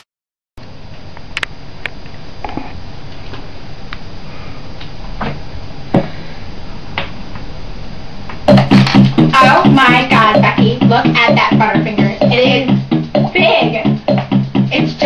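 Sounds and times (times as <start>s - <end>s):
room hiss: 0.6s - 15.0s
music with a beat: 8.5s - 15.0s.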